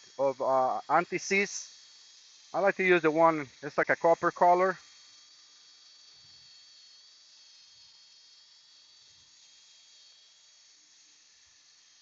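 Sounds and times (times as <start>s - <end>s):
faint steady hiss: 0.0s - 1.7s.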